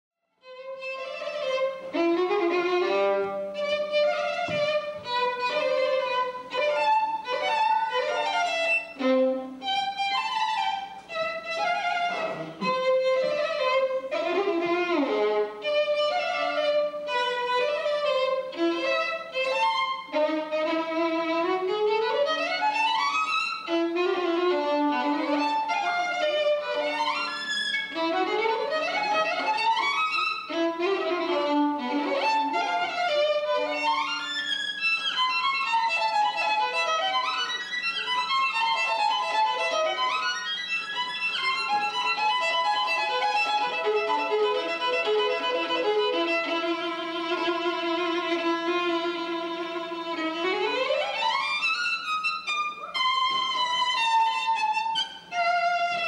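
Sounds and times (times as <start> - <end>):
solo violin fast passage: 0.4 - 56.0.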